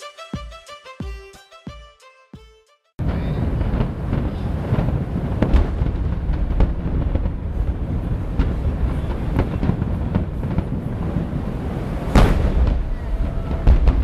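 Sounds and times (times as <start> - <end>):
rumble of firework bursts: 3.0 - 14.0
sharp firework bangs: 3.0 - 14.0.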